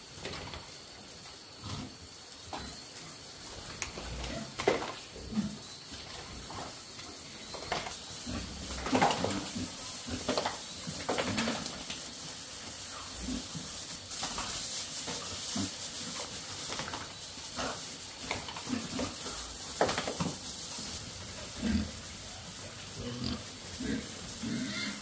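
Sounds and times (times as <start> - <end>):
hose spray hissing: 5.1 - 25.0
pigs grunting and squealing: 21.4 - 25.0.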